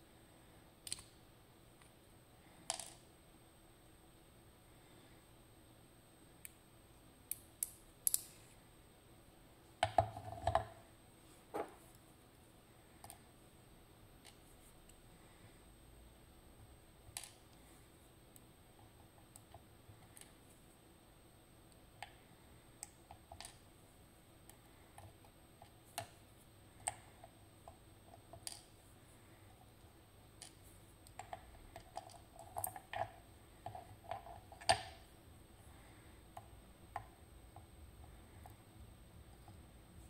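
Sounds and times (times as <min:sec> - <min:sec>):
small metallic clicks and taps: 0:07.3 - 0:08.4.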